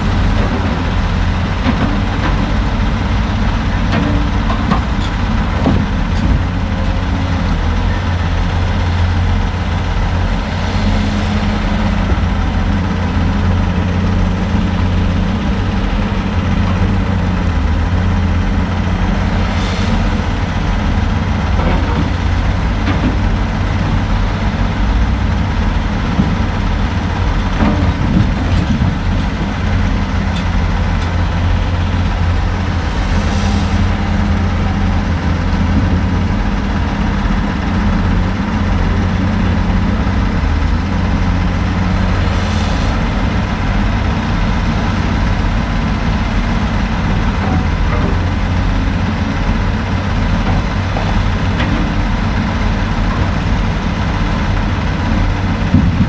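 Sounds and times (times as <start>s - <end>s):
diesel engines droning: 0.0s - 56.0s
grapple knocks and clunks: 3.9s - 6.6s, 55.7s - 56.0s.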